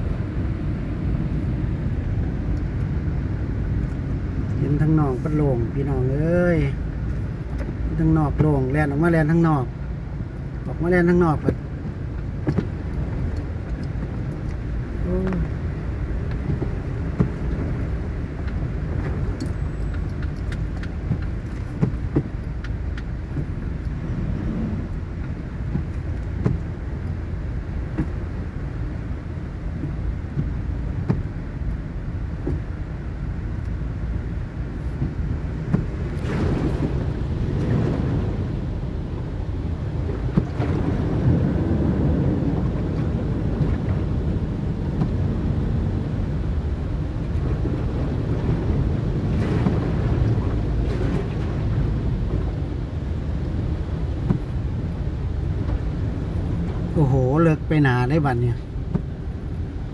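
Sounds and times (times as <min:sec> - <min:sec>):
engine and tyres in water: 0:00.0 - 0:59.9
rushing wash of water: 0:00.0 - 0:59.9.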